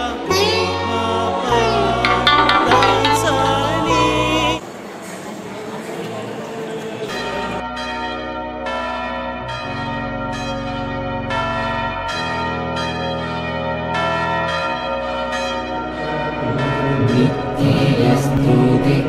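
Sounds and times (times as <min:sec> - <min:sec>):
chiming bell melody: 0:02.1 - 0:04.0
sustained low keyboard chords: 0:02.1 - 0:04.0.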